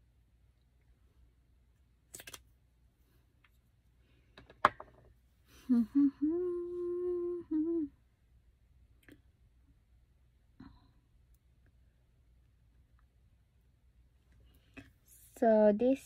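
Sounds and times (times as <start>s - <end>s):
woman humming: 5.6s - 8.0s.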